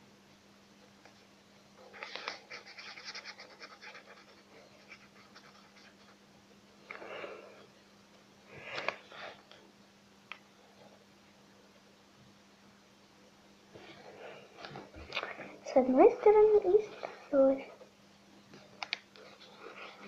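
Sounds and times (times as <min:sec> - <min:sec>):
drawing tool scratching on paper: 0:02.4 - 0:06.2.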